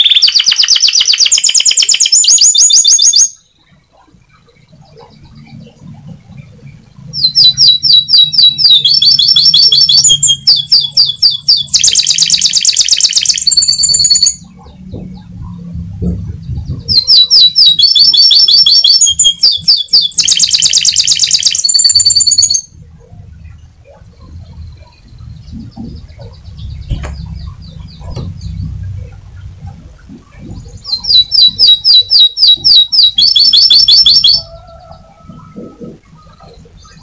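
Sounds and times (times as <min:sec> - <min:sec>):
canary singing: 0:00.0 - 0:37.0.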